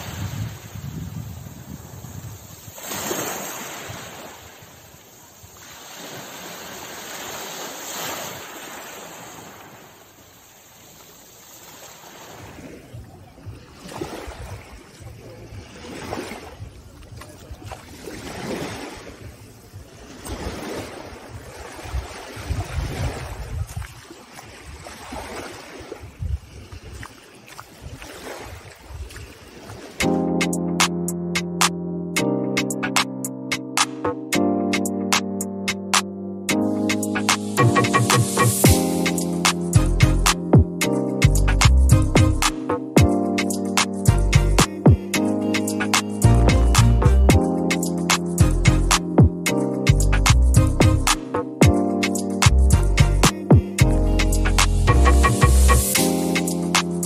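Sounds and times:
wind buffeting microphone: 0.0s - 2.8s, 12.4s - 30.0s
waves washing up pebbly shore: 0.0s - 16.9s, 17.5s - 30.1s
surf swishing around wading feet: 0.0s - 30.9s.

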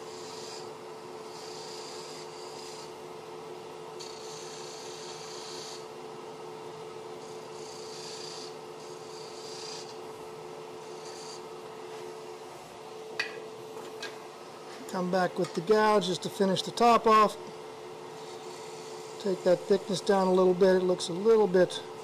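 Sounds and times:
chisel cutting wood on lathe: 0.1s - 2.9s, 4.0s - 5.8s, 7.2s - 10.0s, 10.8s - 11.4s, 18.1s - 21.4s
lathe motor hum: 0.1s - 13.8s, 14.4s - 22.0s.

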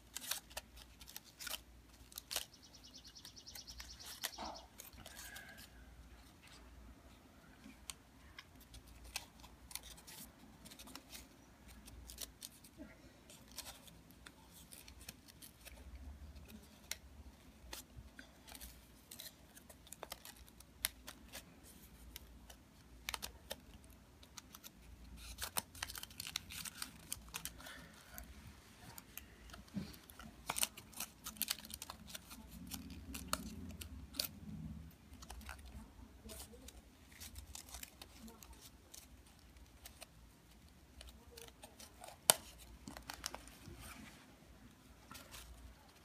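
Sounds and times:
paper crackling as creased: 0.0s - 46.0s
paper rustling and crinkling: 0.0s - 46.0s.

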